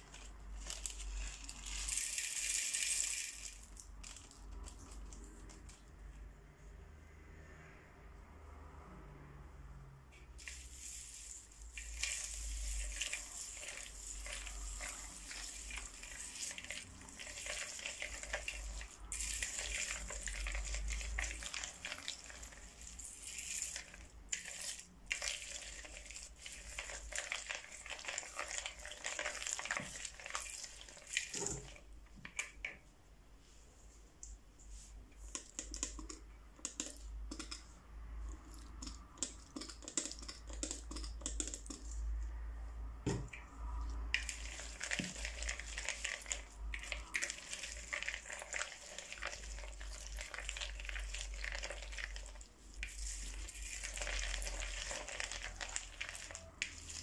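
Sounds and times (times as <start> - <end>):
beads crackling in slime: 0.0 - 5.9, 10.4 - 31.8, 44.1 - 57.0.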